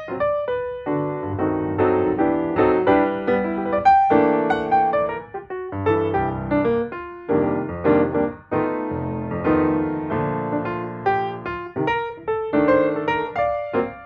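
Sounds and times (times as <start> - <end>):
piano music: 0.0 - 14.0.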